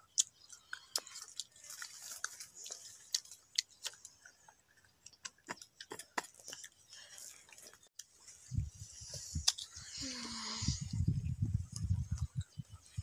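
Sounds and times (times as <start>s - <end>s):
children chewing crisp mango: 0.0s - 13.0s.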